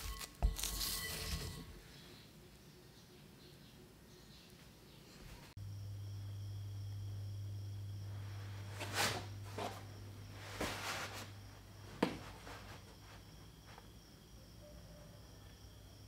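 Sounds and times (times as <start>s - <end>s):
rustles and scrapes: 0.0s - 2.0s, 8.2s - 13.9s
steady low hum: 0.0s - 14.7s.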